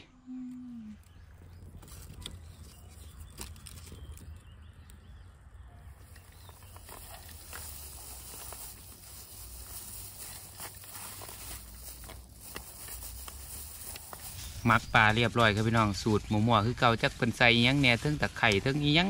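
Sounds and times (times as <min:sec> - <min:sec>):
plastic glove rustling: 0:01.1 - 0:04.6, 0:05.9 - 0:15.5.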